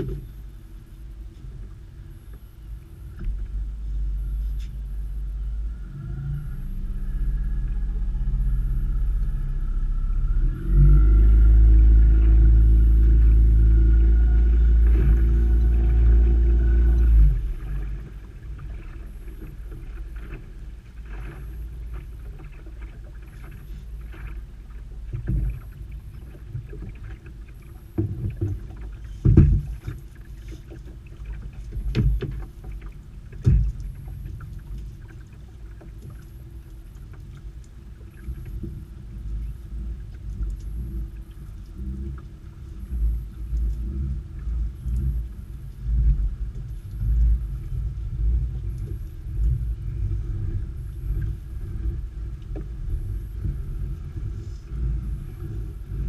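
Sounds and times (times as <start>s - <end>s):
water against boat hull: 0.0s - 56.0s
wind: 0.0s - 56.0s
sharp knocks on boat: 27.9s - 30.1s, 31.7s - 34.3s.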